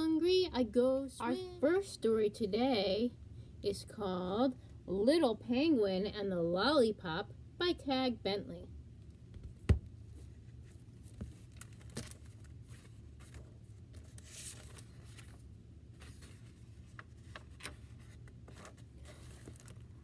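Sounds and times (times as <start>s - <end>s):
low room hum: 0.0s - 20.0s
book page rustle: 10.1s - 20.0s.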